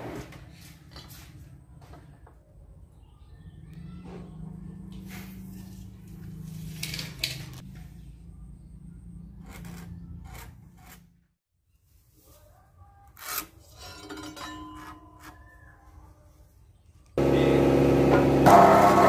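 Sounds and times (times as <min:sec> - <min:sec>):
pencil and square scraping on timber: 0:09.2 - 0:11.2, 0:13.1 - 0:13.7.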